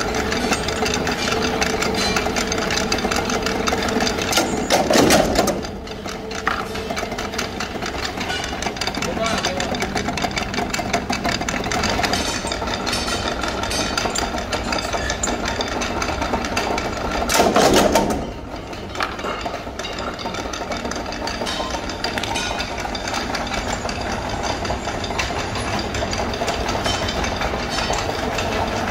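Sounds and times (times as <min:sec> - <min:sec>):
workshop machinery rattling: 0:00.0 - 0:28.9.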